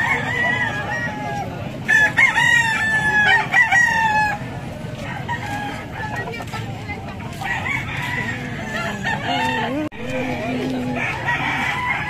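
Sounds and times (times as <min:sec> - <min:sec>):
rooster crowing: 0:00.0 - 0:04.4, 0:07.4 - 0:09.9, 0:11.0 - 0:12.0.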